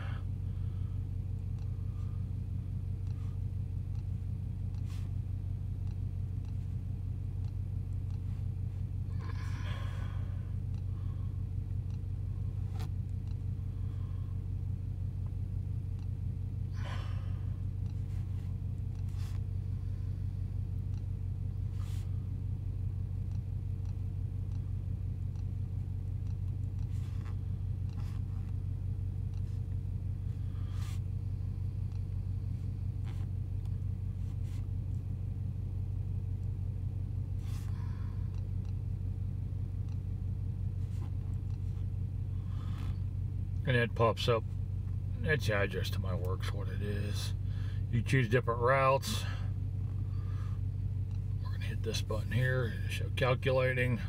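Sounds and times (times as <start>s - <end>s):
truck engine idling: 0.0s - 54.0s
faint clicks: 31.8s - 32.2s.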